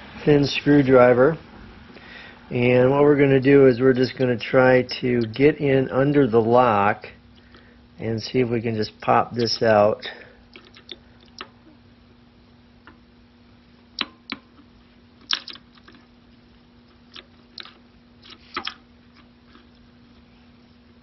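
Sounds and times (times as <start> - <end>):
sharp metal clicks: 15.2 - 16.0.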